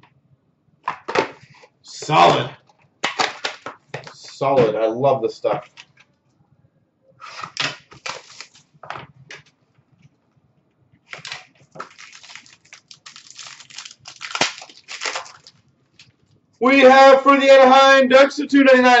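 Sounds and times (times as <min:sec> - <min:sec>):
plastic wrap crinkling: 0:07.5 - 0:08.9, 0:11.0 - 0:16.4.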